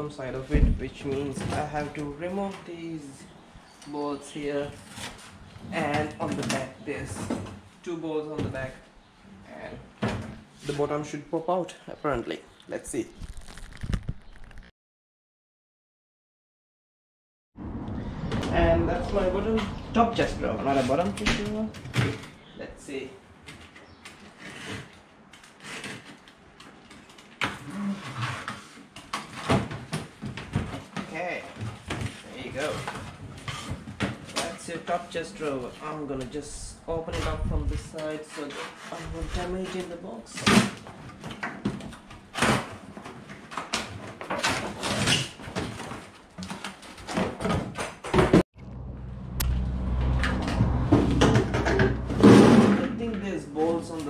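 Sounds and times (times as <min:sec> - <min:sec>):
steady low hum: 0:48.6 - 0:53.2.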